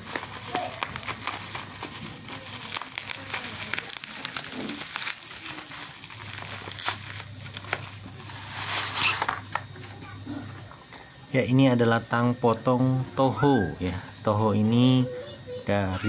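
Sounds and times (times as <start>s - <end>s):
bubble wrap crinkling: 0.0s - 10.2s.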